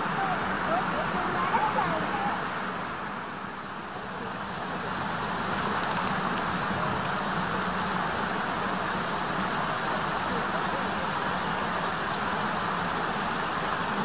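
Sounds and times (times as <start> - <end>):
rumbling hiss: 0.0 - 14.0.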